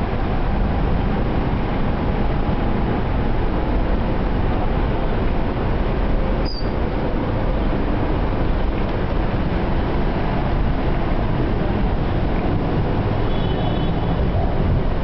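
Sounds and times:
traffic rumbling roar: 0:00.0 - 0:15.0
short high chirp: 0:06.4 - 0:06.8.

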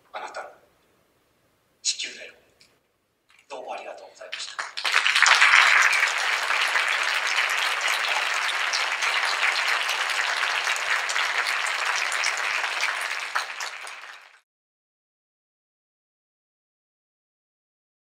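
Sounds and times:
audience applauding: 0:04.3 - 0:14.4.

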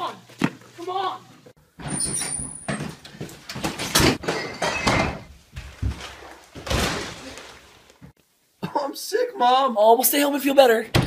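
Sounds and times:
front door banging open: 0:01.8 - 0:07.2.

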